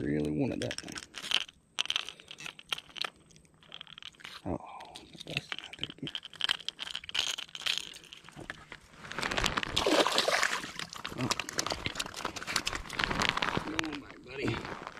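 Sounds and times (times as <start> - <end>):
crunchy handling rustles: 0.0 - 4.4, 5.0 - 14.9
small metallic clicks: 0.1 - 8.6.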